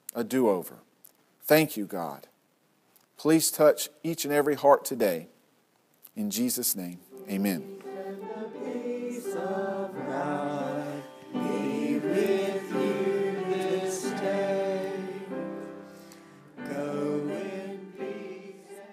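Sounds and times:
choir singing a hymn: 0:07.1 - 0:18.9.

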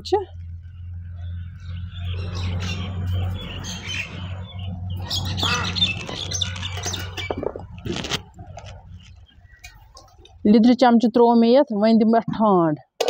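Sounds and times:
low steady hum: 0:00.0 - 0:12.6
bird squawking: 0:01.8 - 0:10.0.

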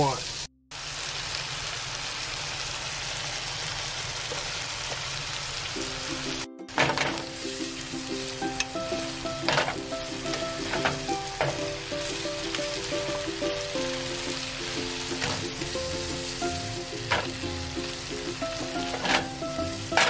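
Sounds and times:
shrimp sizzling in a pan: 0:00.0 - 0:20.0
background music with held notes: 0:05.7 - 0:20.0.

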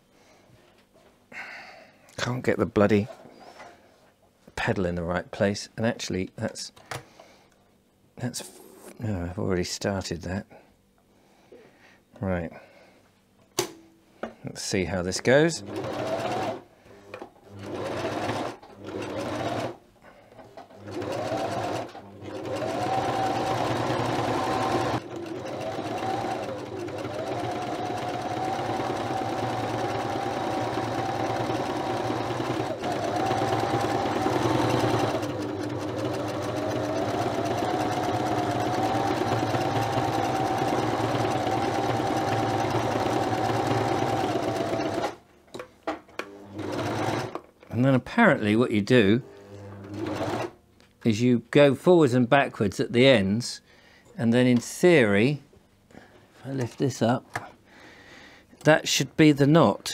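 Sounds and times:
sewing machine motor whining: 0:15.6 - 0:16.6, 0:17.5 - 0:19.8, 0:20.7 - 0:45.2
sewing machine needle chatter: 0:15.6 - 0:16.6, 0:17.6 - 0:19.8, 0:20.8 - 0:45.2.

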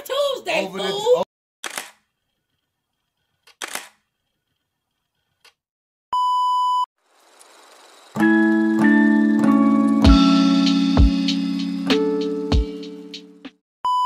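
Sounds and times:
electric piano music: 0:08.2 - 0:13.6.

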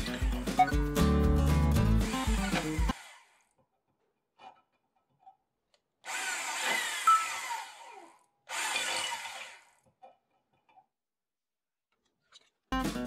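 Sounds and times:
hand drill drilling steel: 0:00.0 - 0:00.8, 0:02.0 - 0:03.6, 0:06.0 - 0:09.9.

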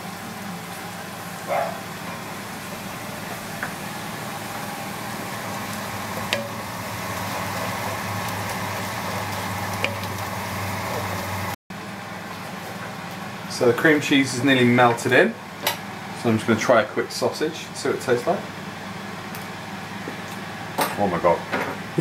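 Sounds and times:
sauce sizzling in pot: 0:00.0 - 0:11.6.

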